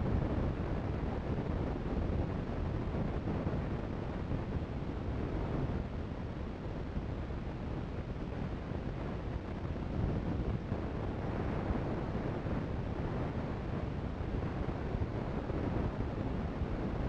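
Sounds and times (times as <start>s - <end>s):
steady rumbling background noise: 0.0s - 17.0s.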